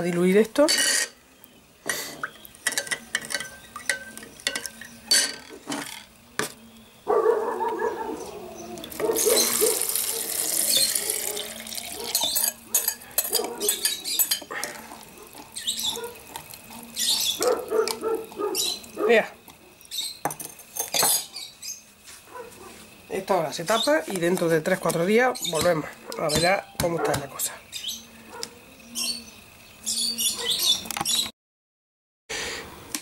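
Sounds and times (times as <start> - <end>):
metal spoon clinking on glass jar: 2.6 - 6.0, 11.6 - 14.5, 19.8 - 21.3
brine pouring into glass jar: 8.7 - 21.0.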